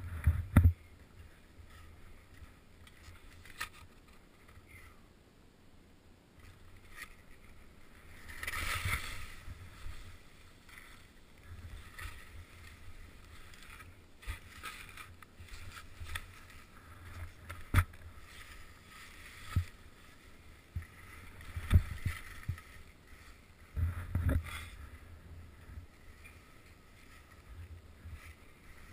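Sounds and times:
skis swishing through snow: 0:06.5 - 0:28.9.

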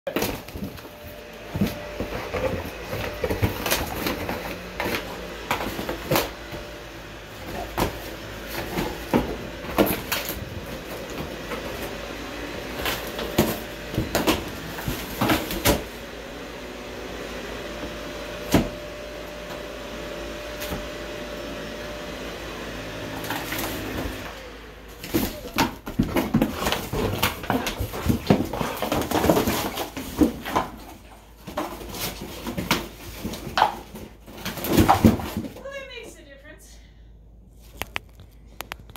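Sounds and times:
dog tearing cardboard: 0:00.1 - 0:06.7, 0:07.3 - 0:12.0, 0:12.7 - 0:16.0, 0:25.0 - 0:35.6.

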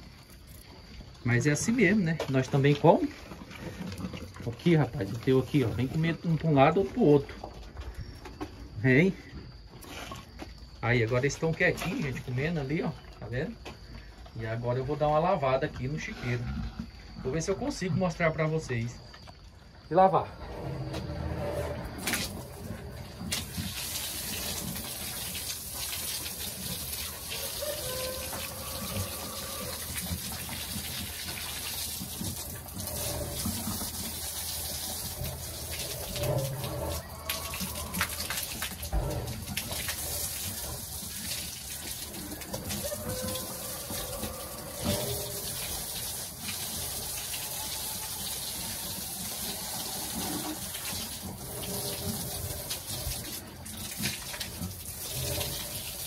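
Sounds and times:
hose spraying water on concrete: 0:22.0 - 0:56.0.

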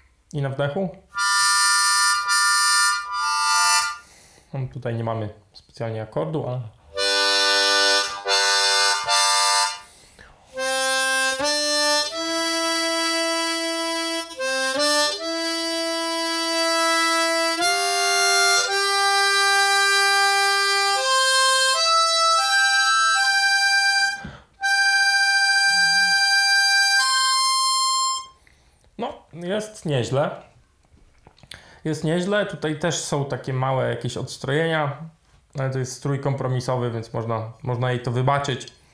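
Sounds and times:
harmonica chords and notes: 0:01.1 - 0:04.2, 0:06.9 - 0:28.5.

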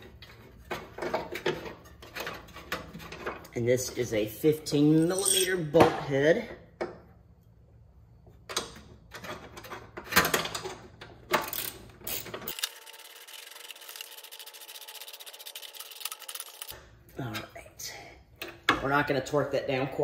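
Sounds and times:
ratchet wrench clicking: 0:11.4 - 0:16.7.

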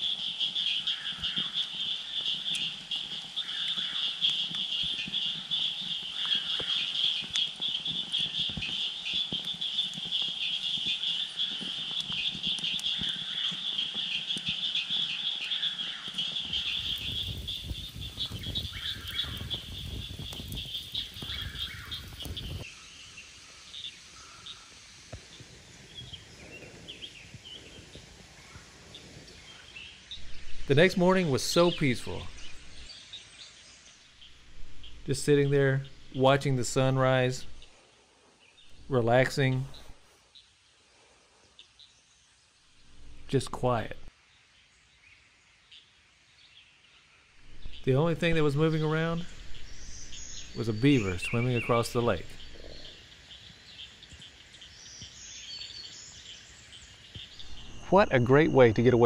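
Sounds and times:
frogs calling in a trill: 0:00.0 - 0:24.8, 0:47.4 - 0:59.0.

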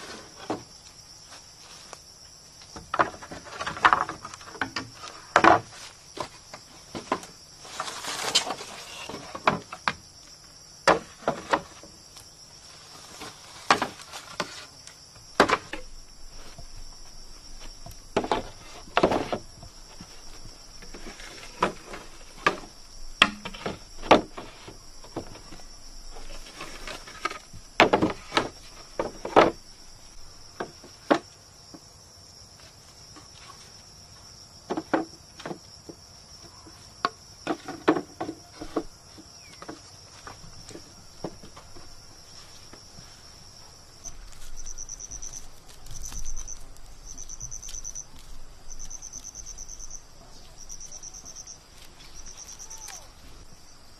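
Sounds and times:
jungle insects droning: 0:00.0 - 0:53.9
bamboo poles knocking: 0:15.3 - 0:16.8, 0:21.6 - 0:25.5, 0:27.2 - 0:29.6.

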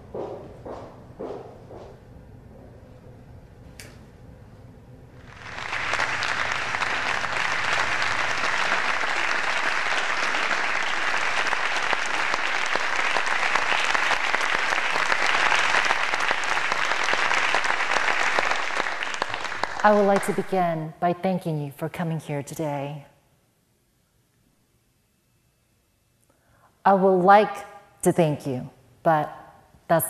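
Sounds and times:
audience applauding: 0:05.2 - 0:20.8.

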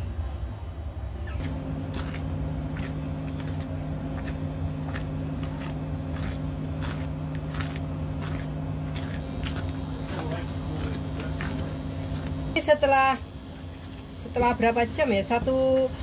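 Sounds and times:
low hum: 0:00.0 - 0:16.0
spatula stirring bubbling jam: 0:01.4 - 0:12.5.

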